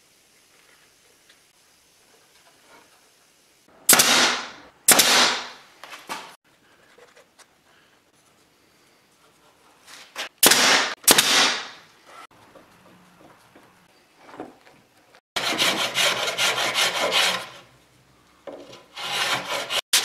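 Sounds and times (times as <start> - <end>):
pneumatic nailer bang: 3.9 - 5.6, 10.4 - 11.8.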